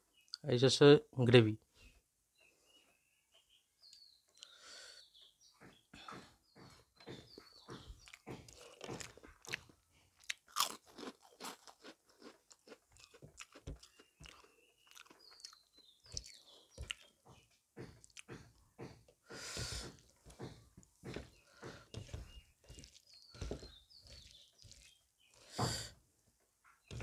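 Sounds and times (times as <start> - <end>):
wet chewing and mouth sounds: 7.1 - 25.9.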